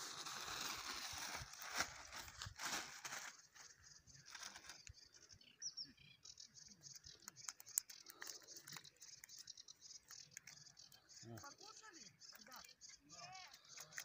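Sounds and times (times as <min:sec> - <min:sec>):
rustling of keepnet and plastic bag: 0:00.0 - 0:04.9.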